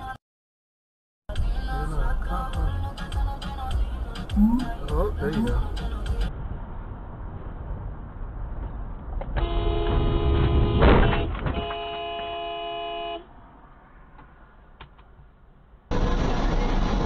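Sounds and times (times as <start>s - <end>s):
low road noise: 1.3s - 17.0s
car horn blasts: 9.4s - 13.3s
loud burst of noise: 15.9s - 17.0s.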